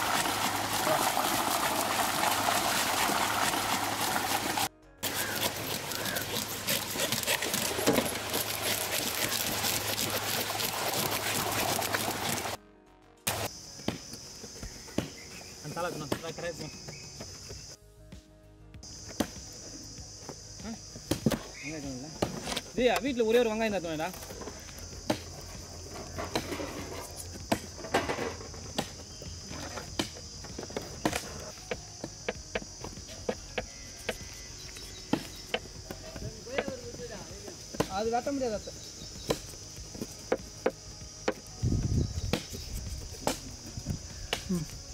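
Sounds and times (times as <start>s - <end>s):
high insect chirr: 0.0s - 12.6s, 13.3s - 17.8s, 18.8s - 44.9s
knives scraping fish on steel tray: 5.0s - 9.4s.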